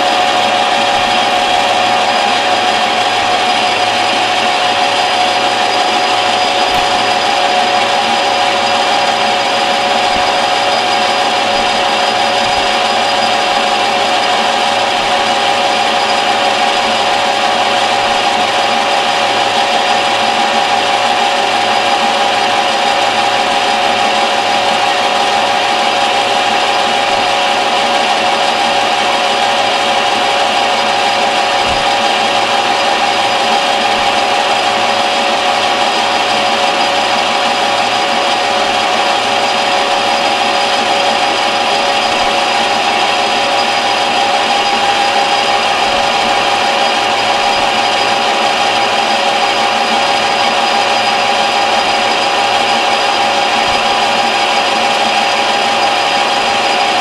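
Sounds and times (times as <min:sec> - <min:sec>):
metal lathe whining: 0:00.0 - 0:57.0.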